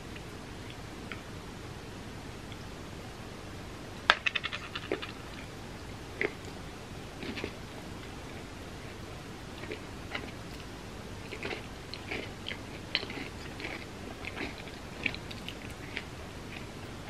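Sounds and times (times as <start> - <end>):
lip smacking and chewing: 6.2 - 17.0.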